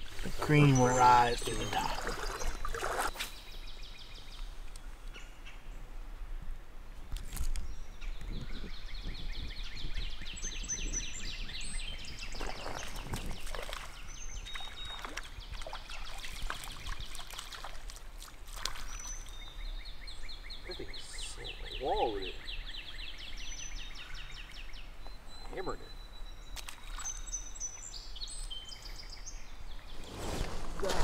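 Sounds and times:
faint running water: 0.0s - 3.1s
birds chirping and trilling: 0.0s - 5.9s, 7.5s - 17.8s, 18.7s - 30.9s.

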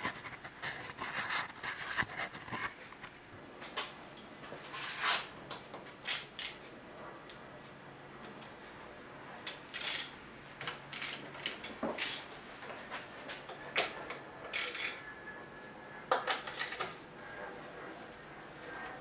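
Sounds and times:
wrench and bolts clinking on metal: 6.0s - 6.7s, 9.4s - 10.2s, 10.9s - 12.3s, 14.5s - 15.1s, 16.2s - 17.0s.

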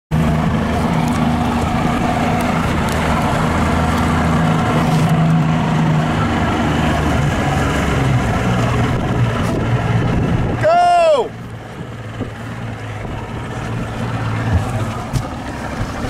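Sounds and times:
small boat motor running: 0.1s - 16.0s.

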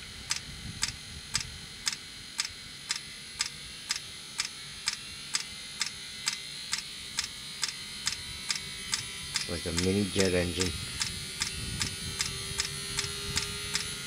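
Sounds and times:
heater hissing: 9.3s - 14.0s.

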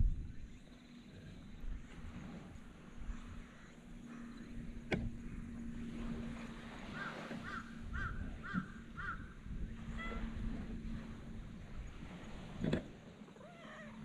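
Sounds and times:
bird calling: 6.8s - 10.4s, 13.3s - 14.0s.

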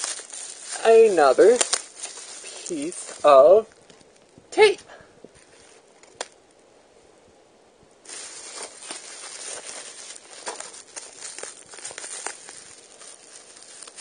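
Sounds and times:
tape peeling off bubble wrap: 0.0s - 4.3s, 8.0s - 14.0s.

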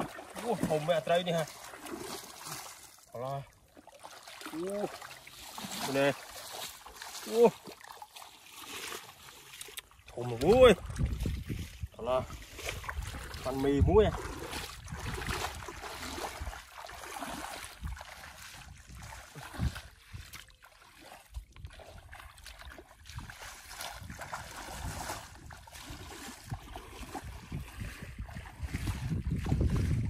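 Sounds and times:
bare feet splashing through water: 0.0s - 30.0s
wind rumbling on microphone: 10.3s - 16.7s, 17.6s - 20.4s, 21.4s - 30.0s.

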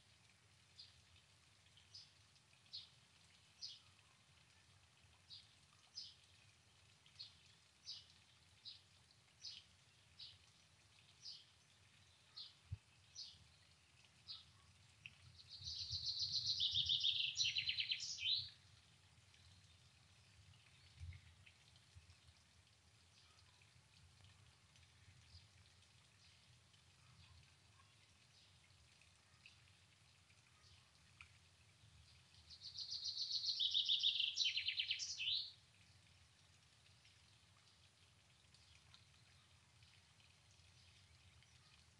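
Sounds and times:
songbird chirping: 15.3s - 18.6s, 32.0s - 35.6s
bird trilled song: 15.4s - 18.5s, 32.5s - 35.5s.

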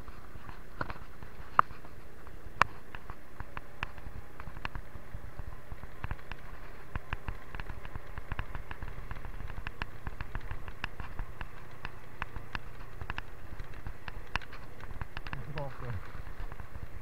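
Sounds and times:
clicks and crackles: 0.0s - 17.0s
motorcycle engine and road noise: 0.0s - 17.0s.

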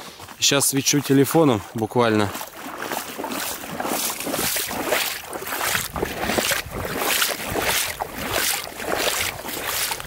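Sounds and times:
footsteps in wet slushy snow: 0.0s - 10.0s.

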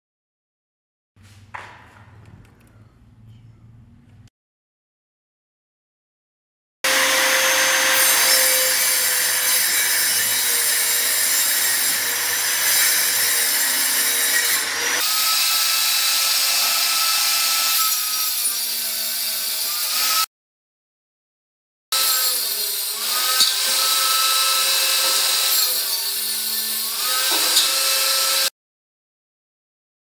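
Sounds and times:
table saw cutting board: 6.8s - 20.3s, 21.9s - 28.5s.

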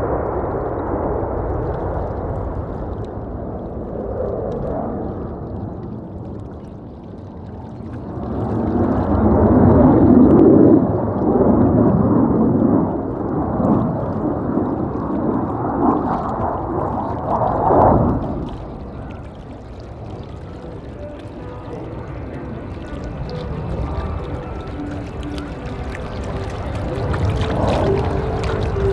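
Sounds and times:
fighter jet engine rumble: 7.3s - 28.9s.

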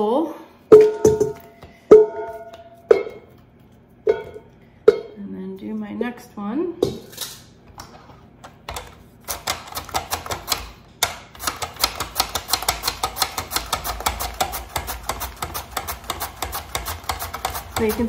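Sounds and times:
mandoline slicing sweet potato: 11.4s - 18.0s.

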